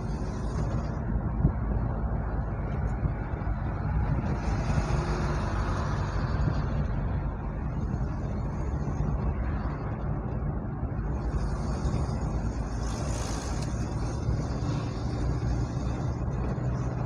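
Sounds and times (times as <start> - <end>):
road hiss: 0.0 - 1.1, 3.5 - 6.9, 11.0 - 17.0
car engine and tyre rumble: 0.0 - 17.0.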